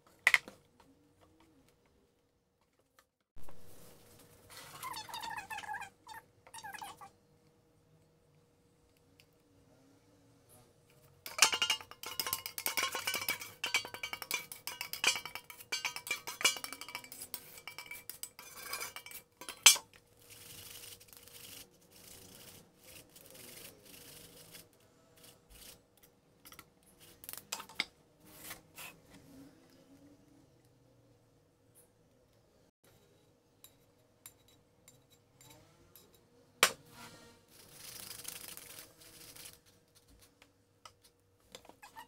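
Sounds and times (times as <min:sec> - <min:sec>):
batter strained through sieve: 0:11.2 - 0:25.8, 0:37.5 - 0:40.3
metal kitchenware scraping: 0:11.3 - 0:19.9.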